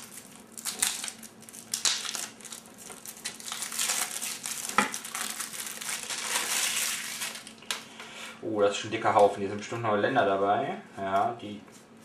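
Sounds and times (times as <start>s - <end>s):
plastic wrapping crinkling: 0.0s - 7.8s.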